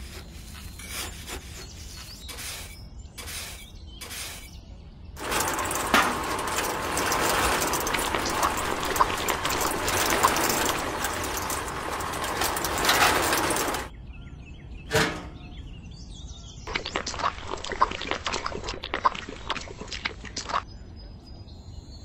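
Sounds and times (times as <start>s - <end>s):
wet cement pouring: 0.0s - 4.5s, 5.2s - 13.9s, 16.7s - 20.6s
bird chirps: 0.4s - 5.2s, 13.9s - 16.7s
toy cement mixer drum rattling: 5.2s - 13.9s.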